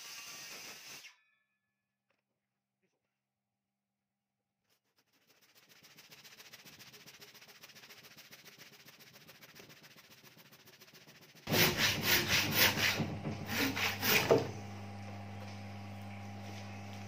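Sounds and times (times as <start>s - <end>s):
handsaw rasping through wood: 5.1s - 14.6s.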